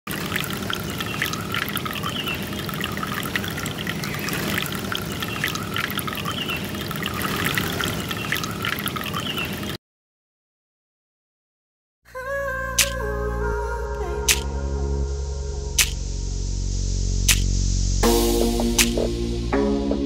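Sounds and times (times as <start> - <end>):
aquarium water bubbling: 0.1 - 9.8.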